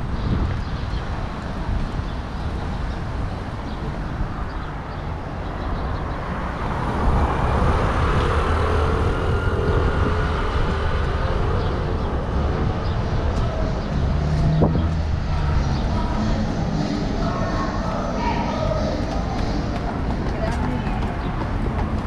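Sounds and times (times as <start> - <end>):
rumble of cars: 0.0 - 22.0
vehicle engine passing close: 6.4 - 20.2.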